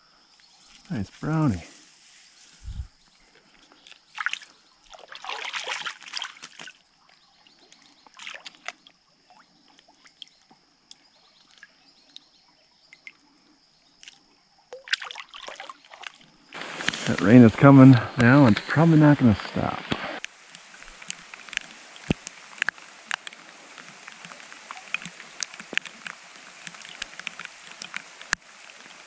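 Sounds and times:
creek water splashing: 3.8s - 10.4s, 13.9s - 29.0s
water drips: 3.8s - 13.3s, 14.0s - 19.1s, 20.2s - 29.0s.

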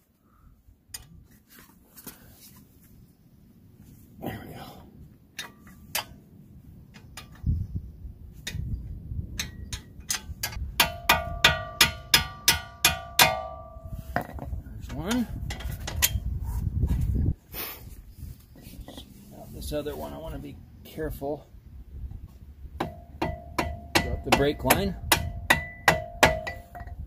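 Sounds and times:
hammer striking metal: 9.4s - 13.9s, 22.8s - 26.9s.

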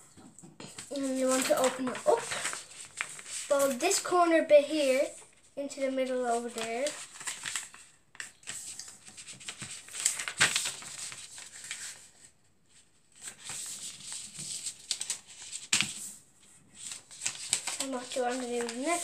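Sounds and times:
paper rustling and crinkling: 0.2s - 19.0s.

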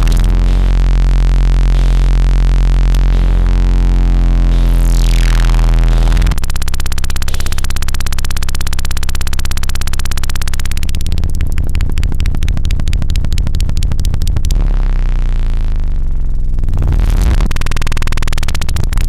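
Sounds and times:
high tone sweeping downward: 0.0s - 6.4s
harsh rapidly pulsing buzz: 0.0s - 7.6s
deep synthesizer drone: 0.0s - 7.7s, 9.2s - 18.4s.

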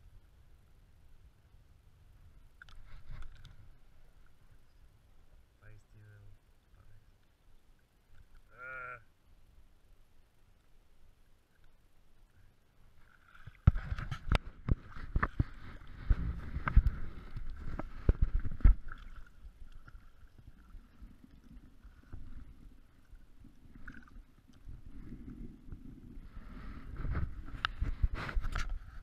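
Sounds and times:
water splashing and sloshing: 2.5s - 5.5s, 10.5s - 29.0s
water swishing: 9.8s - 29.0s.

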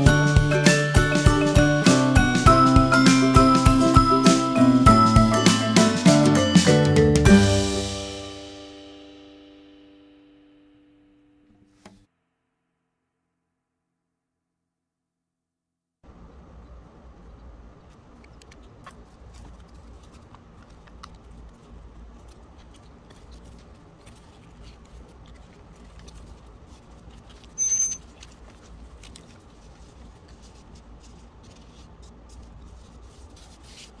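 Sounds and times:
paper rustling and tapping: 18.3s - 34.0s
loud high-pitched squeak: 27.6s - 28.0s.

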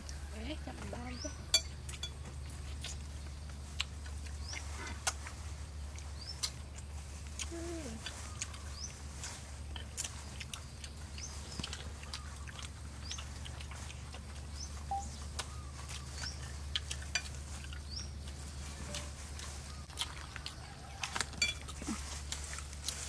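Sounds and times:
steady low hum: 0.0s - 23.0s
bird chirp: 8.0s - 9.4s, 10.1s - 19.9s.

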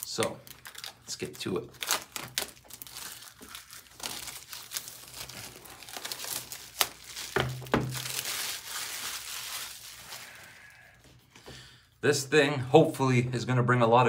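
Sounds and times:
plastic shrink wrap crackling: 0.0s - 11.0s.

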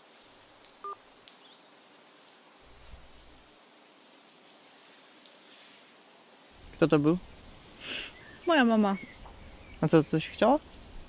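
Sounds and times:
soft rustle: 0.0s - 8.2s
faint bird chirps: 0.8s - 11.0s.

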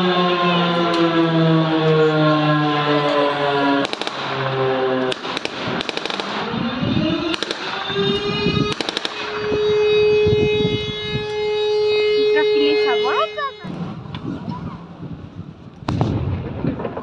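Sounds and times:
air-raid siren wailing: 0.0s - 14.1s
rapid blank gunfire: 3.8s - 4.4s, 5.1s - 6.4s, 7.3s - 7.8s, 8.7s - 9.5s.

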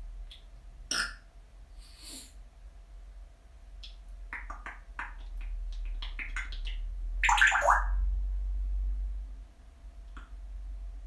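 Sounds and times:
parrot breathy hiss: 1.8s - 2.4s
parrot clicking and chattering: 3.8s - 8.0s.

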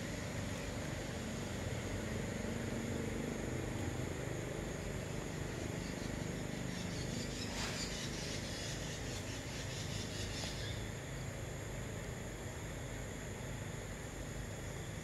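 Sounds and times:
insect chirring: 4.6s - 11.0s.

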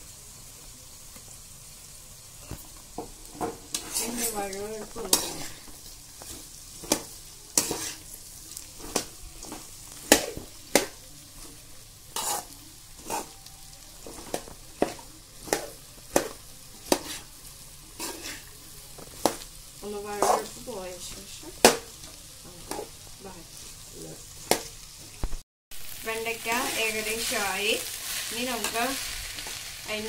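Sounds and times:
low sizzle of frying: 0.0s - 30.0s
metal spatula scraping a pan: 2.4s - 20.7s.

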